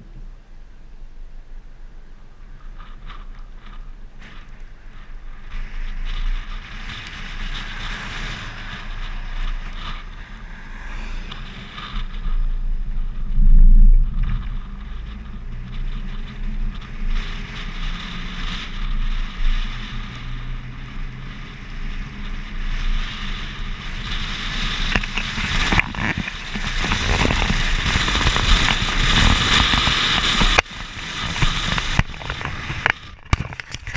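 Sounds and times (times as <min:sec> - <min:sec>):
tyre and road rumble: 0:00.0 - 0:33.9
wind buffeting camera: 0:00.0 - 0:33.9
hand grabbing camera: 0:31.7 - 0:33.9.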